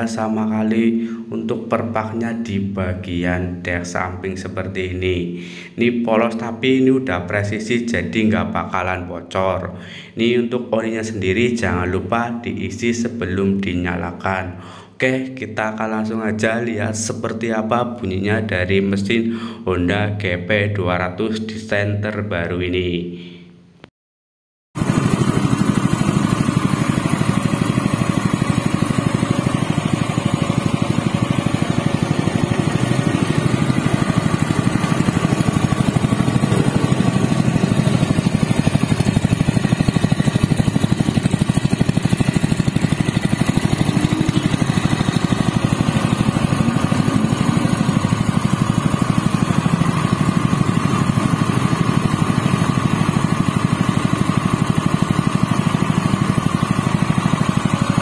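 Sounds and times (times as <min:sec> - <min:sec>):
petrol engine running steadily: 0:24.8 - 0:58.0.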